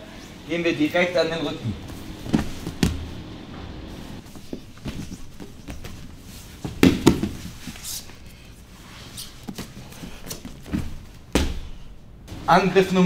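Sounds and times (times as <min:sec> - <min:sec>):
bodies shuffling on a mat: 0:01.7 - 0:12.0
bodies thumping on a mat: 0:01.8 - 0:07.8, 0:09.3 - 0:11.9.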